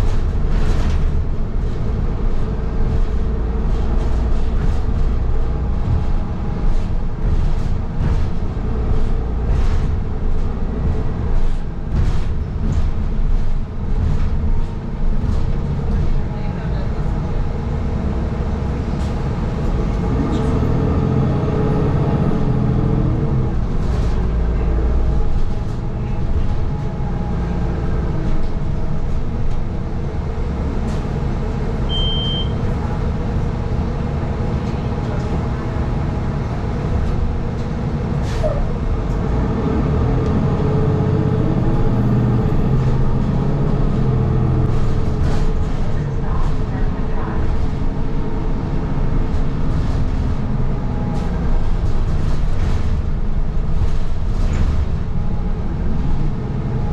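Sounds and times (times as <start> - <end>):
bus engine and road rumble: 0.0 - 56.9
short beep: 31.9 - 32.6.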